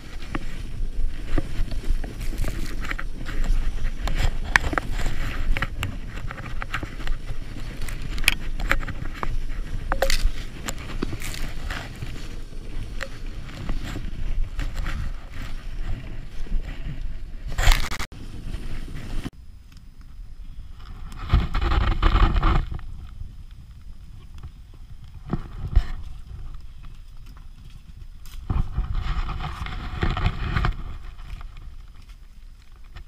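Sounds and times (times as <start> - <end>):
sled sliding through powder snow: 0.0 - 19.3, 27.5 - 32.9
snow hitting microphone: 0.0 - 19.6, 20.5 - 26.9, 27.8 - 33.0.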